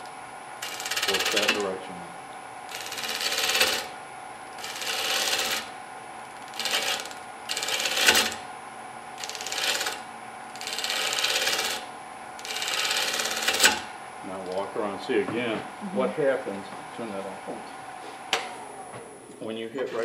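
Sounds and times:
wood lathe humming: 0.0s - 1.6s, 2.7s - 4.0s, 4.6s - 8.4s, 9.2s - 13.9s, 19.8s - 20.0s
turning gouge cutting wood: 0.6s - 1.6s, 2.7s - 3.9s, 4.6s - 5.7s, 6.4s - 8.4s, 9.2s - 10.0s, 10.6s - 13.9s, 19.8s - 20.0s.

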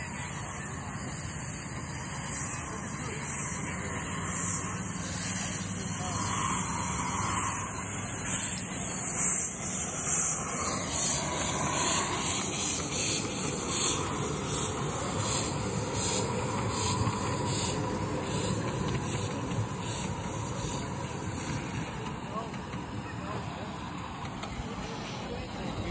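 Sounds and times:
steam hissing: 0.0s - 25.9s
steam locomotive exhaust beats: 0.0s - 25.9s.

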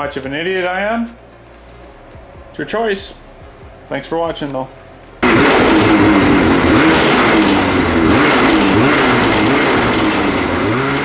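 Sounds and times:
snowmobile engine running: 5.2s - 11.0s.

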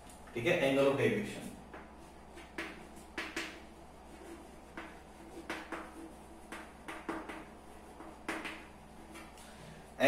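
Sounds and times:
chalk tapping and scraping on blackboard: 1.4s - 9.4s.

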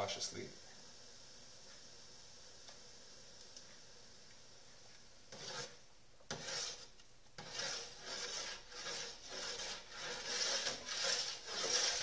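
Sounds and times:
spoon scraping a pot: 5.3s - 12.0s.

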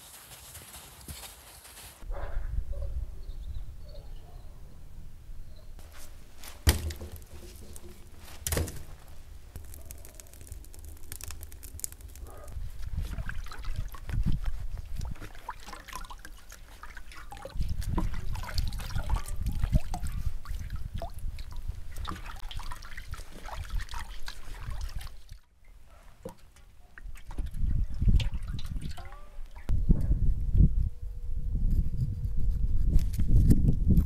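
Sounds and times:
logs knocking into oven: 6.6s - 9.0s
water sloshing in metal basin: 12.8s - 29.7s.

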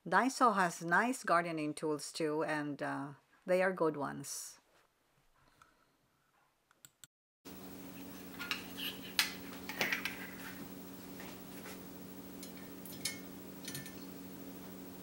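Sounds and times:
steady low hum: 7.5s - 15.0s
metal utensils clinking on hooks: 12.4s - 14.1s.

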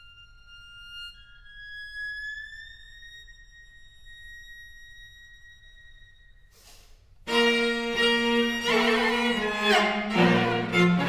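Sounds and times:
low cello: 0.0s - 6.5s, 7.3s - 11.0s
string quartet chord: 7.3s - 11.0s.

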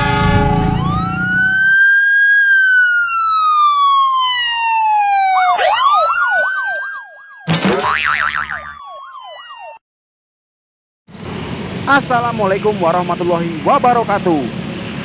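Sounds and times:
train horn and rumble: 0.0s - 1.6s
police siren wail and yelp: 0.0s - 7.6s, 8.5s - 9.8s.

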